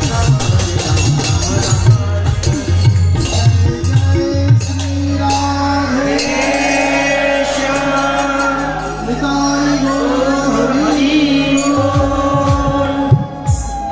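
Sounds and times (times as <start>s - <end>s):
sharp percussion strikes: 0.0s - 9.9s, 10.6s - 13.9s
voices singing a hymn: 5.6s - 13.9s.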